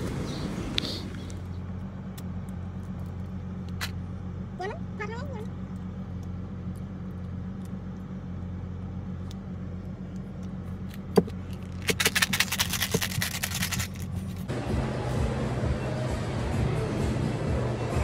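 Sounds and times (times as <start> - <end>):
car engine idling: 0.0 - 18.0
rapid crackling rattle: 11.6 - 14.2.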